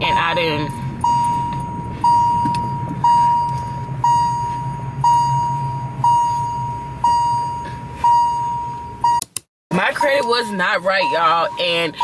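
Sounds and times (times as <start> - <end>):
low hum: 0.0 - 9.2
car warning chime dinging: 0.0 - 12.0.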